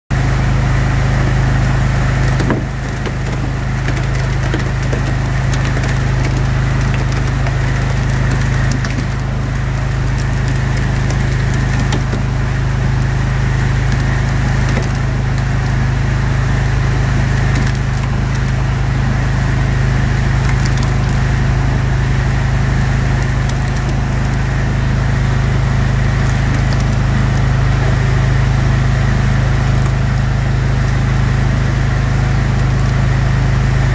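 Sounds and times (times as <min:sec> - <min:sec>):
rotary drum screen hum: 0:00.2 - 0:33.9
wet material crackling and ticking: 0:01.7 - 0:27.6.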